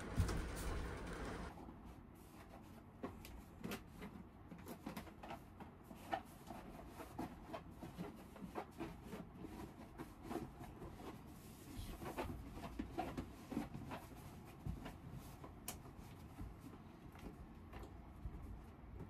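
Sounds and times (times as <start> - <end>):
curtain rustling and crinkling: 0.0 - 1.6.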